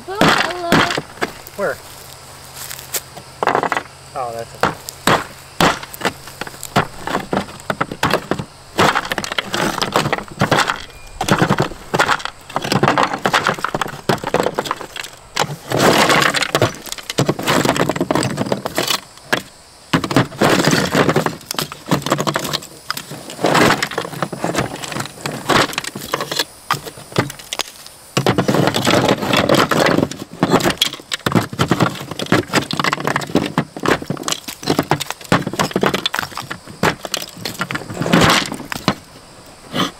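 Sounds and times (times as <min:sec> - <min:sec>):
chunks knocking on plastic: 0:04.6 - 0:18.7
hand tool scraping mortar: 0:04.7 - 0:19.4, 0:20.0 - 0:39.0, 0:39.7 - 0:39.9.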